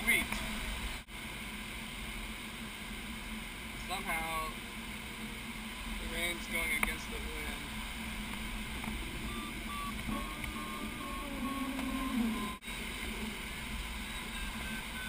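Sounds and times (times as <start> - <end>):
short variometer beeps: 9.2 - 12.6, 14.0 - 15.0.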